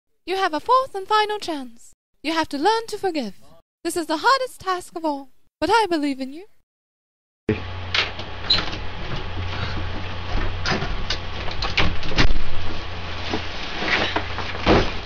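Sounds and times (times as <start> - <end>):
door opening: 7.5 - 12.6
steady low hum: 7.5 - 15.0
rustling: 12.2 - 15.0.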